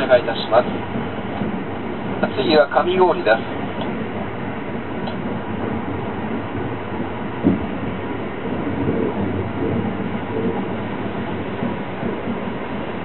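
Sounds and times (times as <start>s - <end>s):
train running rumble: 0.0s - 13.0s
knock in train car: 7.4s - 7.7s.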